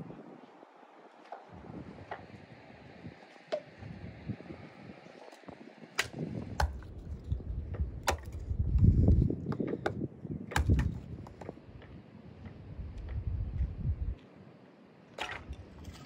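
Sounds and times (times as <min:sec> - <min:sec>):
hatchet chopping wood: 0:06.0 - 0:07.0, 0:08.0 - 0:08.9, 0:09.5 - 0:11.5.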